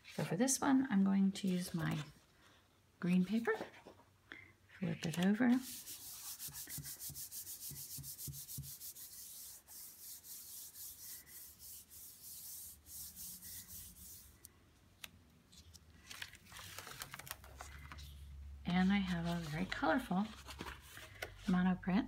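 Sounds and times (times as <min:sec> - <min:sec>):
paper rustle: 0:04.9 - 0:06.9, 0:15.5 - 0:21.5
palms rubbing on paper: 0:05.5 - 0:14.5.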